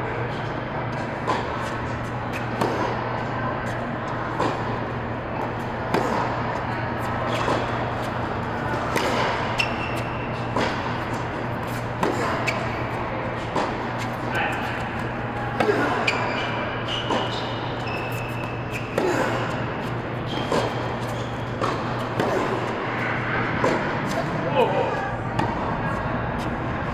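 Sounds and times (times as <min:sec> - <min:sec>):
steady low hum: 0:00.0 - 0:26.9
tennis ball bounces: 0:00.9 - 0:16.3, 0:16.9 - 0:22.8, 0:25.4 - 0:25.8
tennis ball struck by rackets: 0:02.3 - 0:03.0, 0:04.3 - 0:04.8, 0:05.4 - 0:06.4, 0:07.0 - 0:16.2, 0:18.2 - 0:22.7.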